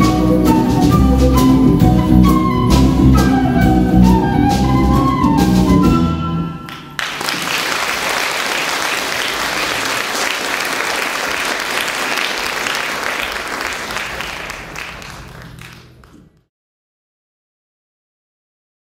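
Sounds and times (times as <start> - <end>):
live band music: 0.0 - 8.2
audience applause: 6.7 - 16.4.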